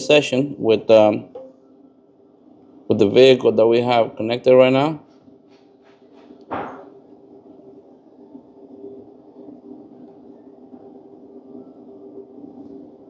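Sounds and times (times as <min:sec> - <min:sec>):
faint steady hum: 0:00.0 - 0:13.0
single thud: 0:06.5 - 0:06.9.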